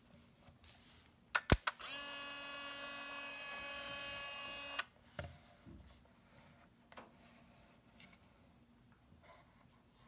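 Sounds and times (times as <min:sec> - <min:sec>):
camera motor whine: 0:01.8 - 0:04.9.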